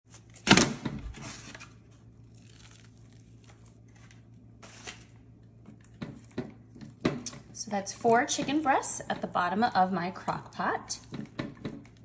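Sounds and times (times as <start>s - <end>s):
foam tray and packaging crinkling: 1.1s - 6.3s.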